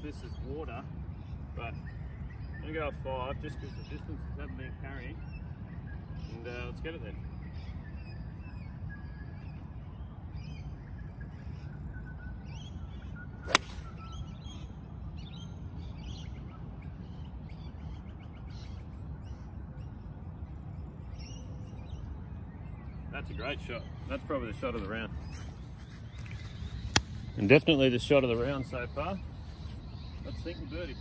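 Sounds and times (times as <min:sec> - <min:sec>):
birds chirping: 0:00.0 - 0:31.0
golf club striking ball: 0:13.4 - 0:14.1.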